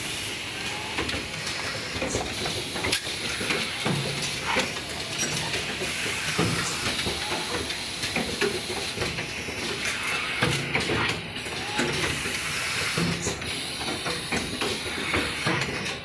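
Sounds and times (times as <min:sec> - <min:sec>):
machinery hissing: 0:00.0 - 0:15.9.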